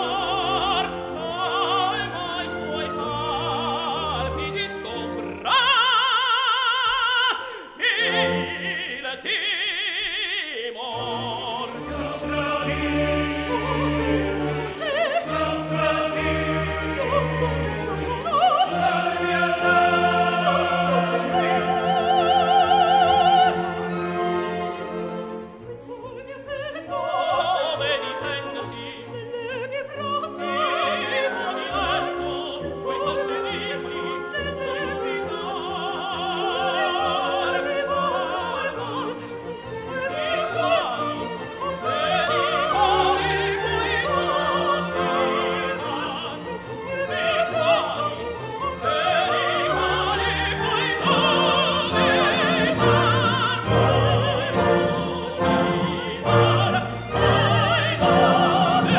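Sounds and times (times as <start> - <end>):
orchestra playing: 0.0 - 9.6, 10.8 - 58.9
opera singer with vibrato: 0.0 - 24.5, 25.5 - 58.9.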